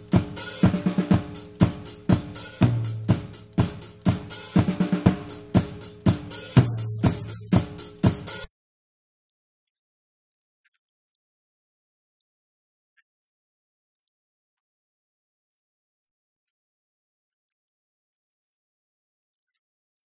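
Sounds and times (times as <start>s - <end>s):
drum kit playing beat: 0.0s - 8.5s.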